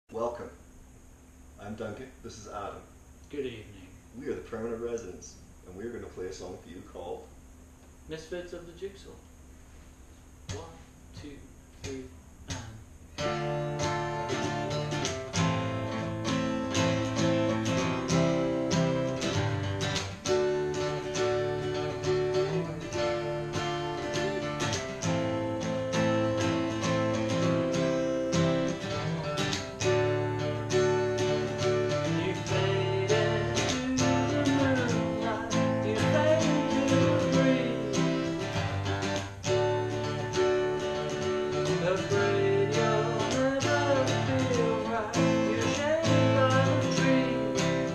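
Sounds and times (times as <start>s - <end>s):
acoustic guitars strumming: 10.4s - 47.9s
man singing: 31.9s - 39.2s, 41.6s - 47.9s.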